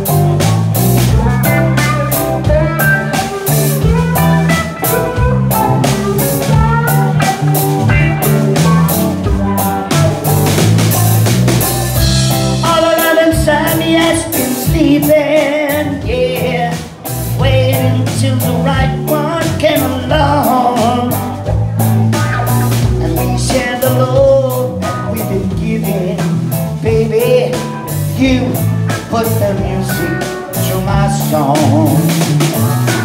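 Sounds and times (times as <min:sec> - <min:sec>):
drum kit beat: 0:00.0 - 0:33.0
electric bass: 0:00.0 - 0:33.0
electric guitars: 0:00.0 - 0:33.0
man singing into microphone: 0:12.5 - 0:21.4, 0:23.0 - 0:32.4.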